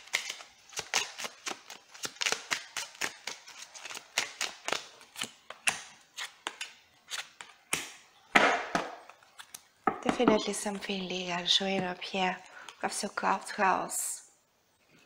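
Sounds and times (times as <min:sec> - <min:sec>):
cards being shuffled: 0:00.0 - 0:08.0.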